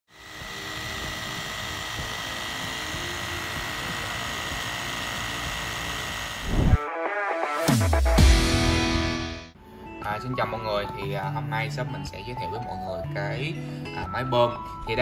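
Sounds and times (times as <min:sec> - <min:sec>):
electric tyre inflator running: 0:00.1 - 0:06.8.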